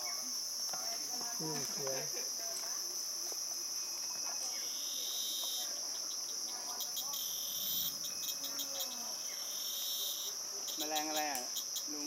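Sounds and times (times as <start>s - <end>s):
cicadas shrill drone: 0.0s - 12.0s
lower cicada buzzing and pulsing: 0.0s - 12.0s.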